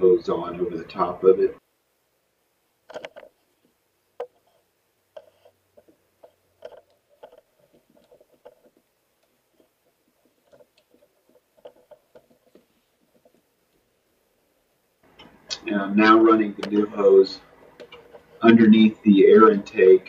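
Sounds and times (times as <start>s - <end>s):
gloved hands handling rubber hose: 2.9s - 13.9s.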